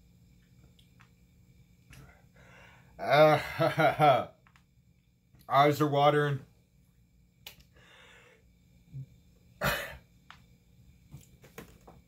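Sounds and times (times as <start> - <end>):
man breathing hard: 2.0 - 3.0, 7.7 - 8.6
forceful burst of breath: 2.3 - 3.0, 7.7 - 8.5.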